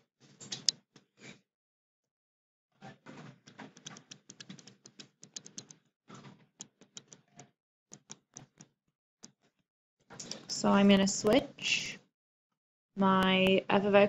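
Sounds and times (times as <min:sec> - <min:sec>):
stylus tapping and scratching on tablet: 0:03.0 - 0:09.6.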